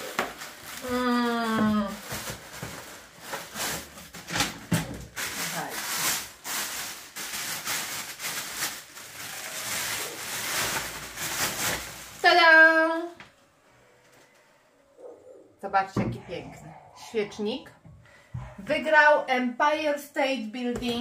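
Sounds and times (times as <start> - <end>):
wrapping rustling and crinkling: 0.0 - 13.2.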